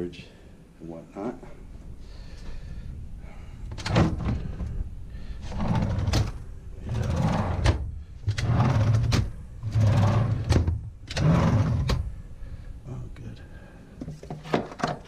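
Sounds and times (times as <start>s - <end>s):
drawers sliding open and shut: 3.7s - 4.8s, 5.4s - 12.1s.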